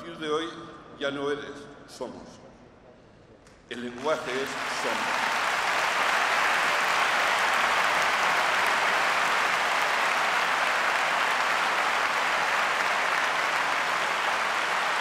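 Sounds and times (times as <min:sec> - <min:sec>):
large crowd applauding: 0:03.8 - 0:15.0.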